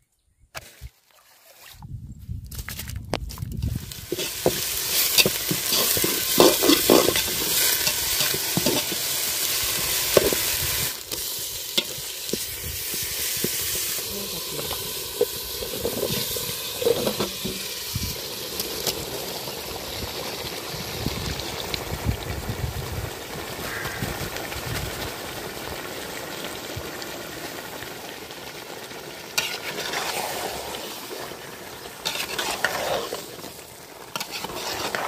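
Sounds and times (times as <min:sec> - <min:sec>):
onions sizzling in hot oil: 0:03.6 - 0:35.0
metal spatula scraping pot: 0:04.1 - 0:09.2, 0:11.1 - 0:17.7, 0:29.4 - 0:31.2, 0:31.9 - 0:33.5, 0:34.1 - 0:35.0.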